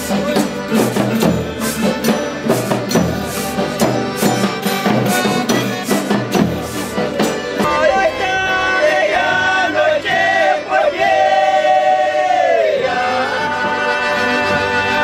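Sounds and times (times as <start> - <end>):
percussion hits: 0.0 - 8.8
strummed strings: 0.0 - 11.2
voices singing long notes: 3.2 - 15.0.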